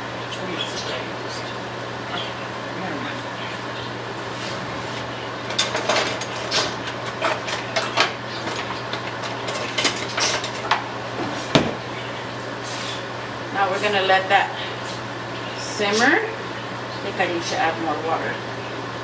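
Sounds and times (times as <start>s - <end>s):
steady low hum: 0.0s - 19.0s
cookware clattering: 5.4s - 10.8s.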